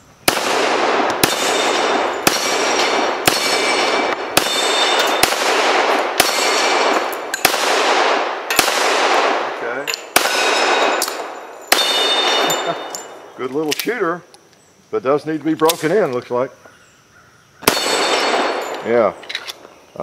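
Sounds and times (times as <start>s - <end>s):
pistol shots with echo: 0.2s - 13.3s, 17.6s - 19.2s
steel targets ringing: 1.2s - 5.4s, 10.0s - 13.4s, 17.7s - 19.2s.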